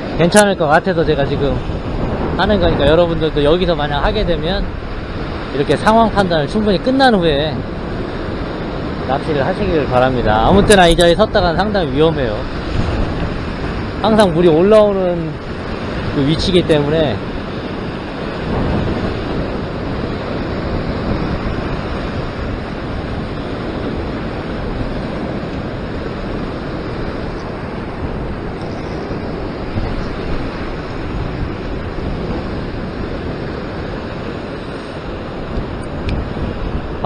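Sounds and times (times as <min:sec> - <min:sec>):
heavy surf breaking on rocks: 0:00.0 - 0:37.0.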